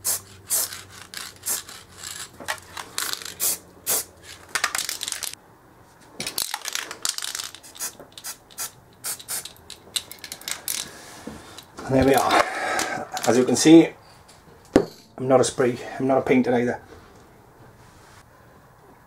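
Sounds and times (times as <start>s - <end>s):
spray can hissing bursts: 0.0s - 2.3s, 3.0s - 4.1s, 7.2s - 9.6s.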